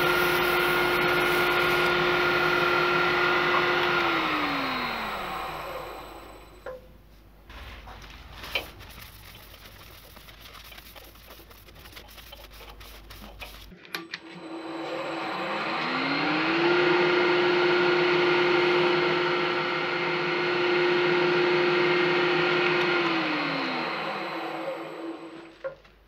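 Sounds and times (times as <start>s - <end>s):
wood lathe motor whine: 0.0s - 6.8s, 14.2s - 25.6s
paper towel rubbing spinning wood: 7.5s - 13.8s.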